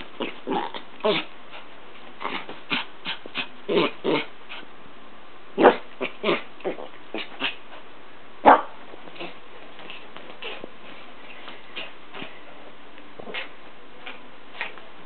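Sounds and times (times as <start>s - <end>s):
dog barking: 8.4s - 8.8s.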